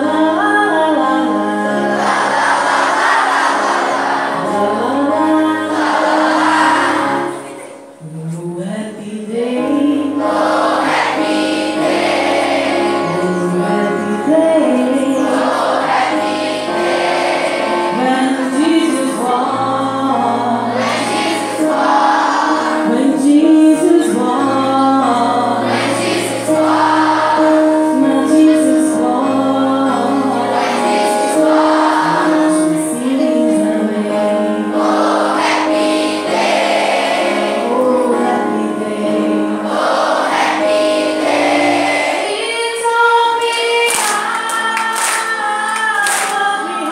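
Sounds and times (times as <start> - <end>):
group of voices singing: 0.0 - 7.9, 9.6 - 46.9
instrumental accompaniment: 9.7 - 46.9.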